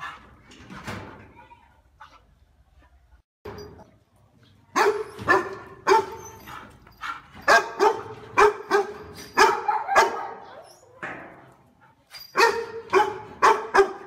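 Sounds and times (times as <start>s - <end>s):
dog barking: 4.8s - 6.3s, 7.0s - 10.6s, 12.4s - 14.0s.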